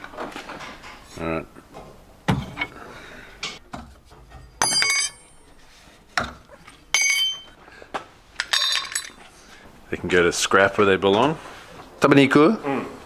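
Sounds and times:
metal clamps clinking: 4.4 - 5.5, 6.6 - 7.6.

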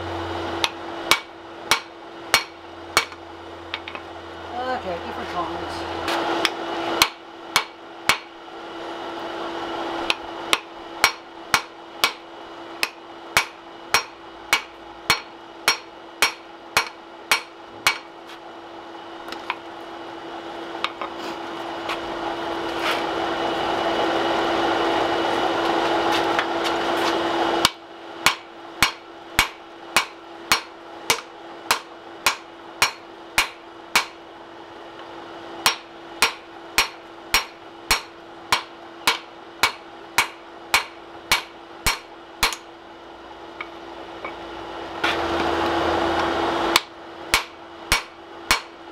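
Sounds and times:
hammer striking hot metal on anvil: 0.6 - 4.0, 6.4 - 8.3, 10.1 - 12.2, 12.8 - 18.1, 27.6 - 34.2, 35.6 - 42.7, 46.7 - 48.8.

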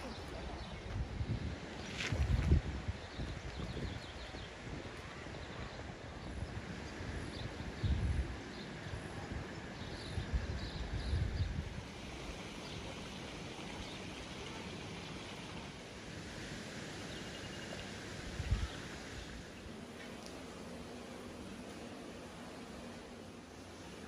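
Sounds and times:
wind buffeting microphone: 0.0 - 12.0, 18.2 - 19.5.

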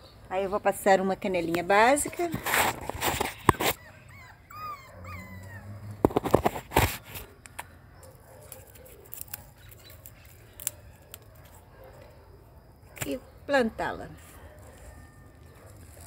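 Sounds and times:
animal calls: 3.2 - 6.4
hands rustling plant and soil: 6.1 - 12.1, 12.9 - 16.0.

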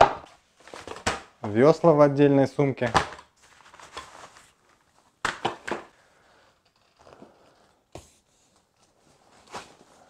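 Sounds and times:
plastic and fabric crinkling: 3.3 - 5.2.

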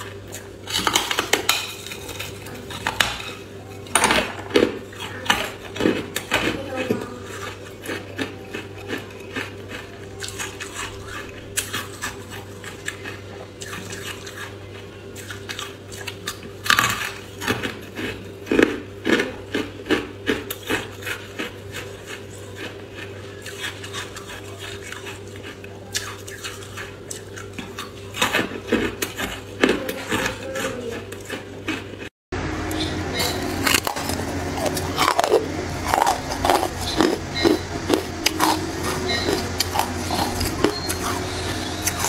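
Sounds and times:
steady low hum: 0.0 - 42.0
ice crunching while chewed: 4.6 - 32.1, 32.7 - 42.0.

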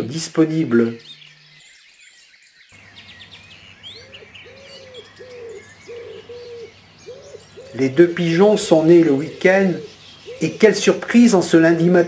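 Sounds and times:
songbirds chirping: 0.0 - 12.0
wood pigeon cooing: 3.9 - 11.5.

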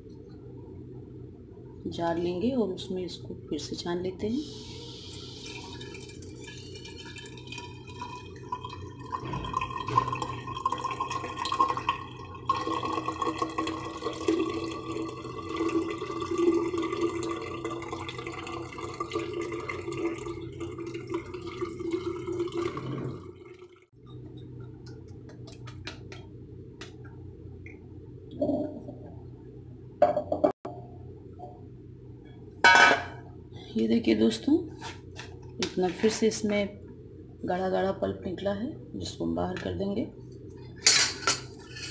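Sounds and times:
juice pouring into a jar: 5.2 - 23.8
liquid dripping: 5.2 - 27.9.

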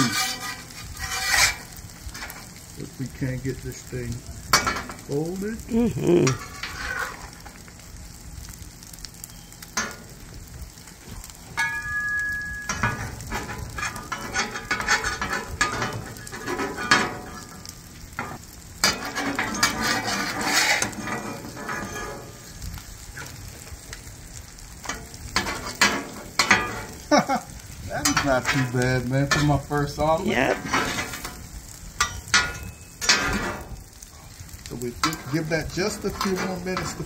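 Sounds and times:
metal spatulas scraping griddle: 0.0 - 2.5, 6.3 - 7.5, 12.7 - 17.6, 18.2 - 22.6, 24.8 - 27.0, 28.0 - 29.9, 30.6 - 31.4, 32.1 - 33.8, 35.0 - 37.0
egg sizzling: 0.0 - 37.0.

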